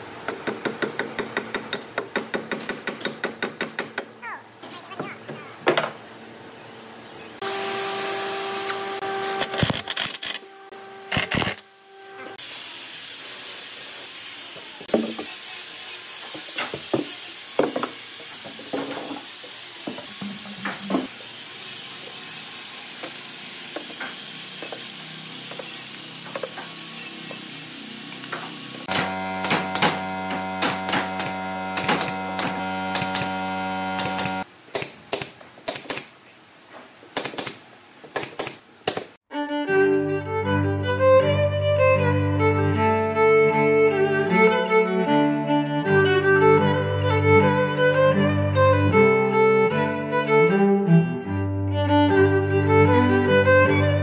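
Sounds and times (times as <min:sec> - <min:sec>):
power tools whining: 0:07.4 - 0:34.5
pneumatic nail gun shots: 0:08.6 - 0:10.4, 0:11.1 - 0:11.7, 0:28.2 - 0:36.1, 0:37.2 - 0:39.2.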